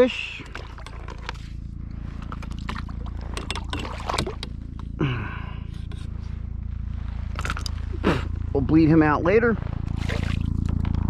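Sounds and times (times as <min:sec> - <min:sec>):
fishing gear clicks and rattles: 0:00.0 - 0:05.0, 0:07.3 - 0:08.0
steady low rumble: 0:00.0 - 0:11.0.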